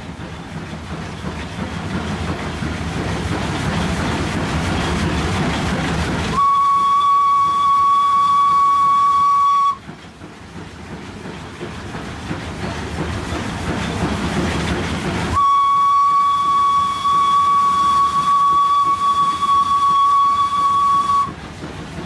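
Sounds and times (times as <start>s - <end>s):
steam locomotive running: 0.0s - 22.0s
steam whistle blast: 6.3s - 9.8s, 15.4s - 21.4s.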